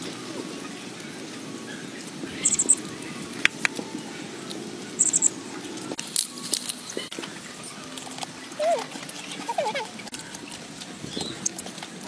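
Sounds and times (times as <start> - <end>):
high-pitched chirps: 2.4 - 2.8, 5.0 - 5.4.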